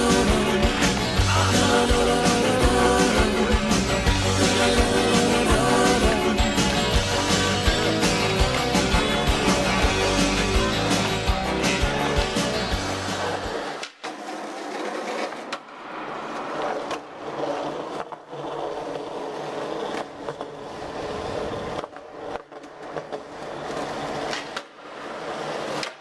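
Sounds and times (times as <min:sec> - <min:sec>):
skateboard wheels rolling on concrete: 0:00.0 - 0:26.0
skateboard clacks: 0:06.0 - 0:26.0.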